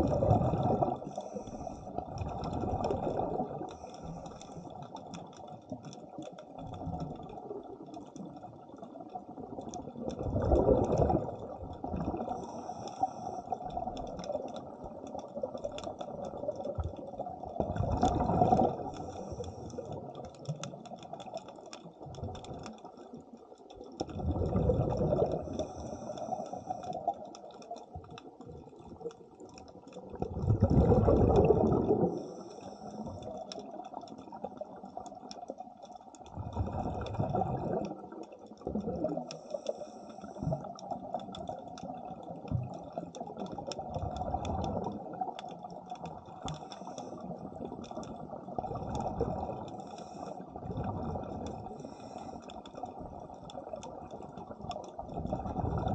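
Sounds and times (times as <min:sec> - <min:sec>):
diver exhaling bubbles underwater: 0:00.0 - 0:03.8, 0:09.4 - 0:12.5, 0:17.5 - 0:19.1, 0:24.1 - 0:26.0, 0:30.1 - 0:32.4, 0:36.3 - 0:39.4, 0:47.5 - 0:49.8, 0:50.6 - 0:52.0, 0:55.0 - 0:55.9
crackle of small clicks: 0:00.0 - 0:55.9.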